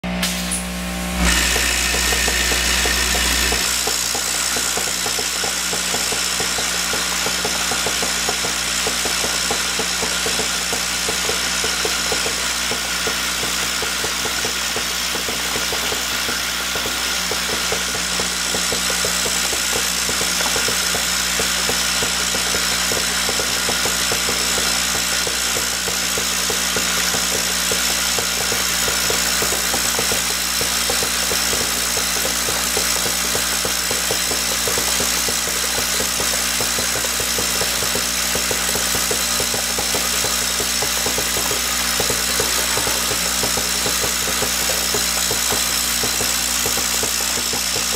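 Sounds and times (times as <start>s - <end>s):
machine hum: 0.0s - 5.1s.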